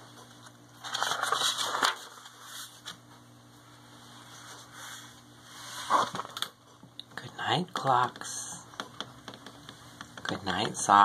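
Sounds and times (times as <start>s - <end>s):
book pages rustling: 0.4s - 3.0s, 4.3s - 6.5s.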